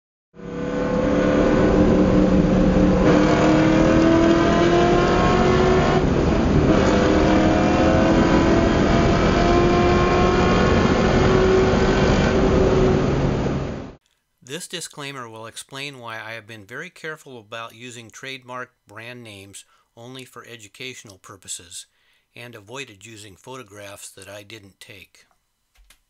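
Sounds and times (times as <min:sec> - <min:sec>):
engine accelerating: 0:00.4 - 0:14.0.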